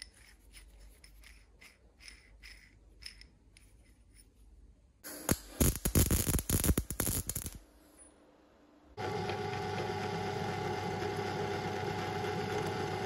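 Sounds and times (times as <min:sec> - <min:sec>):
metal nut clicking and scraping: 0:00.0 - 0:04.5
welder crackling: 0:05.0 - 0:07.7.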